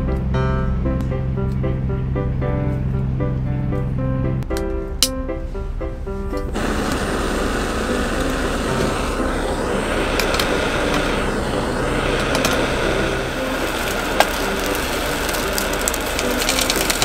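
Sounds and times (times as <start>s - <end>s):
passing engine drone: 6.5s - 16.8s
sausages sizzling in a frying pan: 6.6s - 17.0s
fat popping: 13.4s - 17.0s.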